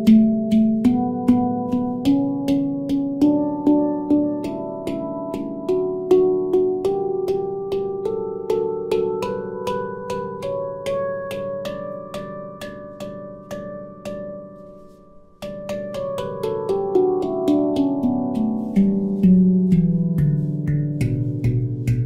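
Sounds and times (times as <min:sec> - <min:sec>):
handpan notes ringing: 0:00.0 - 0:22.0.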